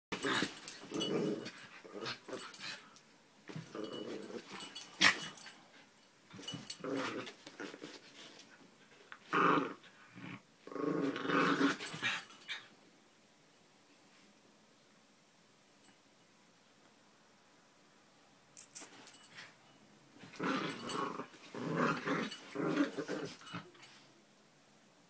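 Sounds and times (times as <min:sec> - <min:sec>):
dogs growling: 0:00.2 - 0:03.0, 0:03.6 - 0:05.5, 0:20.3 - 0:23.7.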